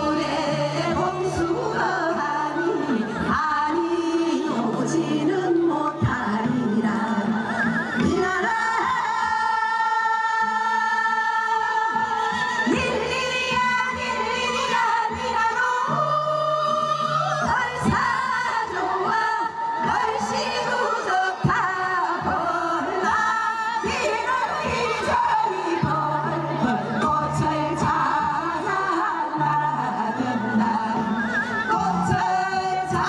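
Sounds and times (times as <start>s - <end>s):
women singing folk song together: 0.0s - 33.0s.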